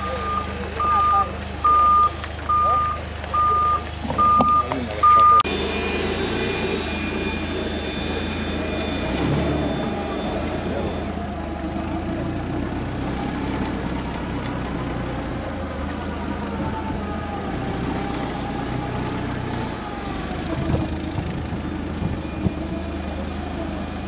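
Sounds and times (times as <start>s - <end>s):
forklift engine running: 0.0s - 24.0s.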